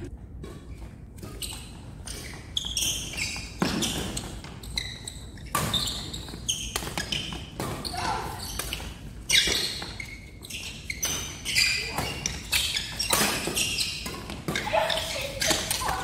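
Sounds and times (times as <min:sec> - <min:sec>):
shoes squeaking on floor: 0:00.0 - 0:16.0
racket hitting shuttlecock: 0:11.0 - 0:16.0.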